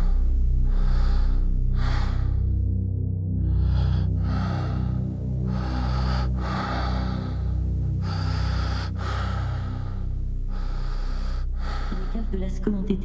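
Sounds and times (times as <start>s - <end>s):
low droning pad: 0.0s - 13.0s.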